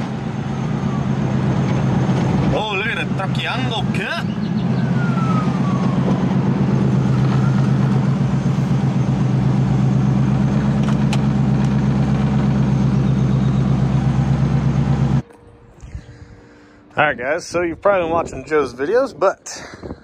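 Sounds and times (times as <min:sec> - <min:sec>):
car engine idling: 0:00.0 - 0:15.6.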